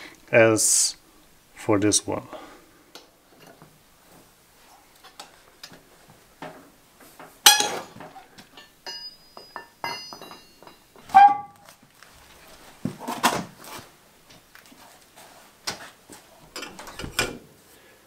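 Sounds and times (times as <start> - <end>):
metal clinks and scrapes: 7.5 - 11.7.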